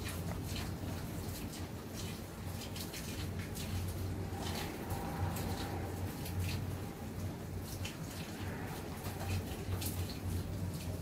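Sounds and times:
raindrops ticking: 0.0 - 11.0
steady low rumble: 3.6 - 11.0.

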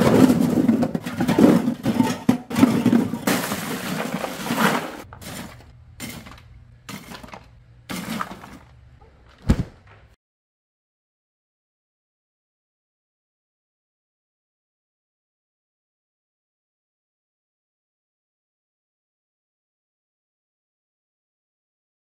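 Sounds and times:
crushed ice pouring: 0.0 - 5.6
soda cans tumbling into cooler: 0.0 - 8.8.

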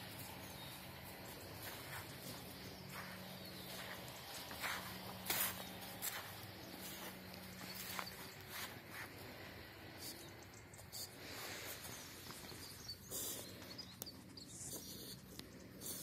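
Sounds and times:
rustling of twigs and leaves: 0.0 - 9.4
dog sniffing: 7.5 - 16.0.

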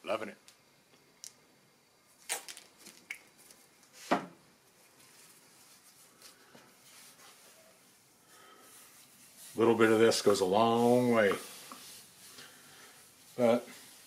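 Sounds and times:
squeeze bottle squirting: 2.2 - 3.4
towel rubbing on wood: 6.8 - 14.0.

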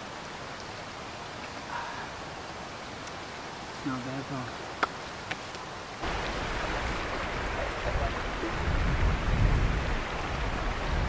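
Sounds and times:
wind gusting on microphone: 6.0 - 11.0.

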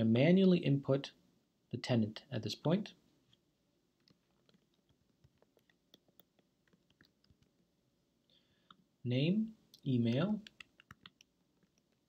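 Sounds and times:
keyboard typing: 4.0 - 7.7, 10.0 - 12.0.

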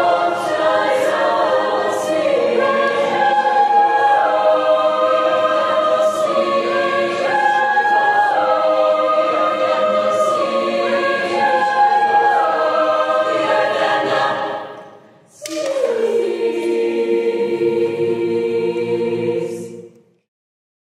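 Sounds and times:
a cappella choir singing: 0.0 - 20.3.

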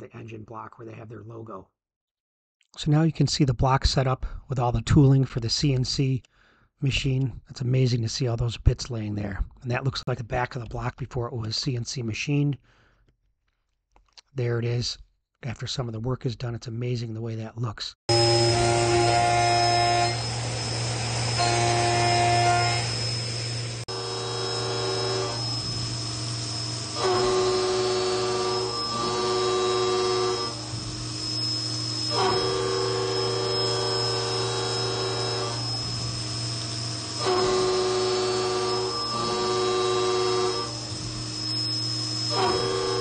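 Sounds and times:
cutter whine: 18.1 - 43.0
milling machine hum: 18.1 - 43.0.

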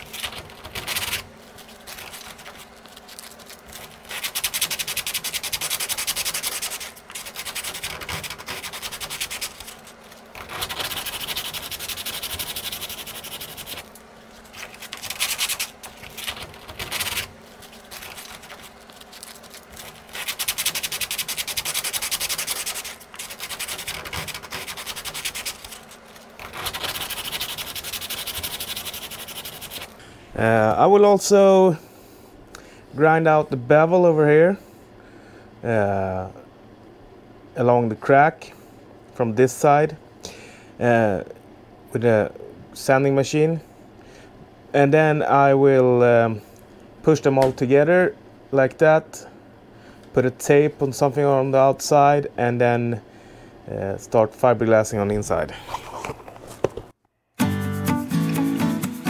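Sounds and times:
hand sanding fiberglass: 0.0 - 29.9.

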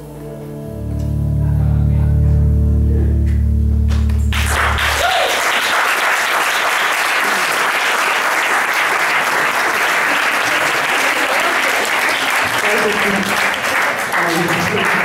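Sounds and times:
band's low sustained note: 0.0 - 5.0
audience applauding: 3.9 - 15.0.

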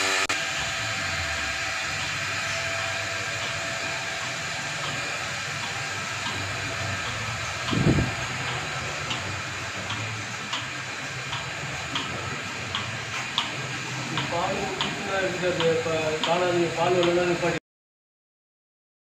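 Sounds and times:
vacuum pump drone: 0.0 - 17.6
pulsator clicks: 4.2 - 17.3.

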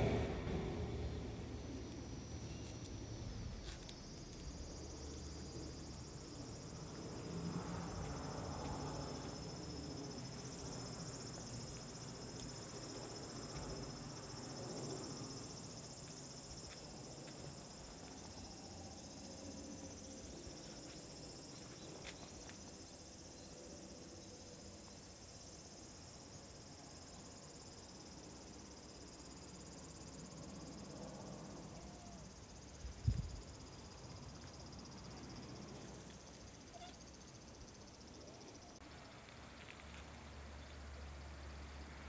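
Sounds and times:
dull low thump: 0.0 - 2.2
insects droning: 0.0 - 42.0.

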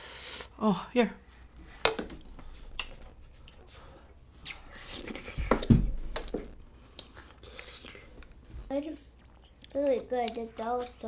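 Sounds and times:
person chewing food: 1.7 - 8.6.

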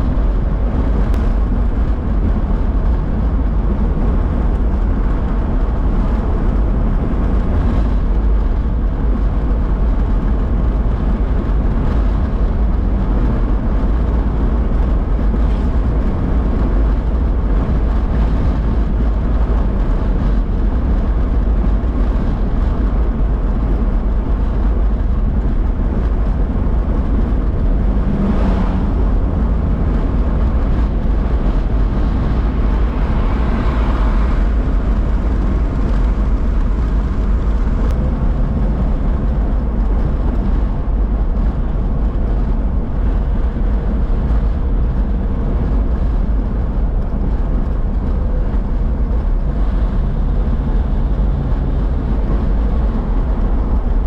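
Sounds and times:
deep engine and road rumble: 0.0 - 54.0
tyres on wet pavement: 26.2 - 44.9.

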